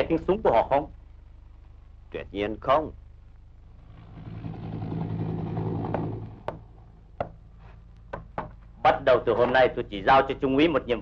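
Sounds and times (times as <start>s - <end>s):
helicopter engine and rotor: 3.8s - 6.8s
short sharp knocks: 8.1s - 8.6s.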